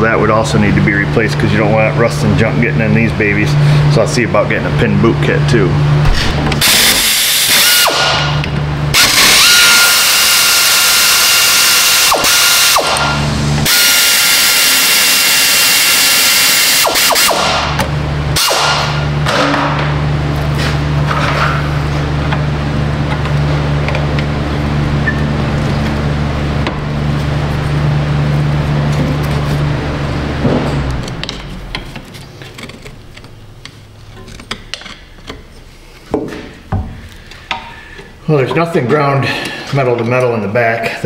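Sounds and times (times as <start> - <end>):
steady low hum: 0.0 - 41.0
power ratchet whining: 6.5 - 19.0.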